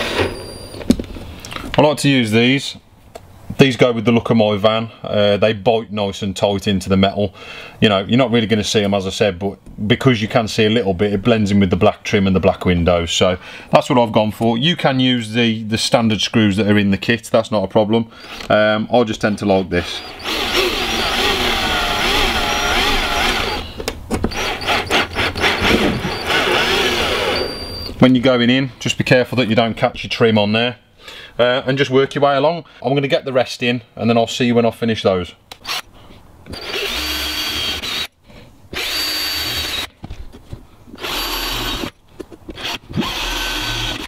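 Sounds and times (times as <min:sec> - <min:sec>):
cordless drill driving screw: 0:18.2 - 0:18.5, 0:19.8 - 0:28.0, 0:35.5 - 0:35.9, 0:36.5 - 0:40.0, 0:41.0 - 0:44.0
drill clutch clicking: 0:20.0 - 0:27.8, 0:36.5 - 0:38.1, 0:38.8 - 0:39.9, 0:41.0 - 0:44.0.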